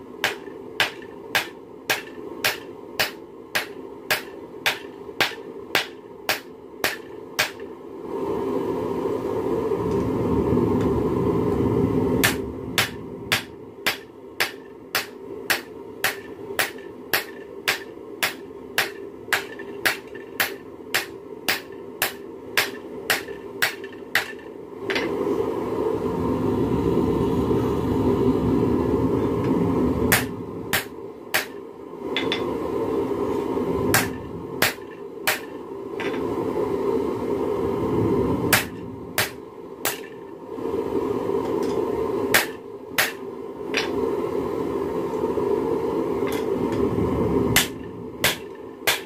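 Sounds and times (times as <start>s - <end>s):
steady rushing noise: 0.0s - 49.0s
hammer striking metal on anvil: 0.2s - 7.7s, 12.2s - 25.2s, 30.1s - 31.6s, 32.2s - 32.5s, 33.9s - 36.2s, 38.5s - 40.3s, 41.6s - 43.2s, 47.6s - 49.0s.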